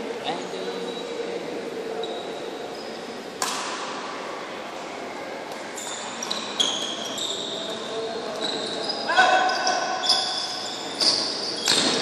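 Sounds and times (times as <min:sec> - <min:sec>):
shoes squeaking on court floor: 0:02.0 - 0:03.2, 0:05.6 - 0:12.0
racket striking shuttlecock: 0:03.4 - 0:03.9.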